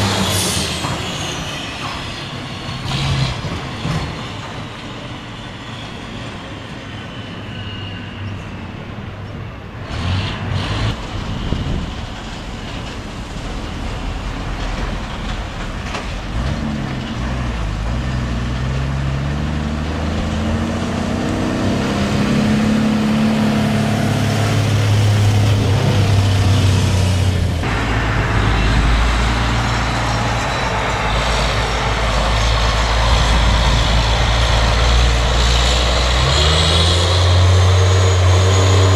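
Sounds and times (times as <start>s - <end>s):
diesel truck engine running: 10.6s - 38.9s.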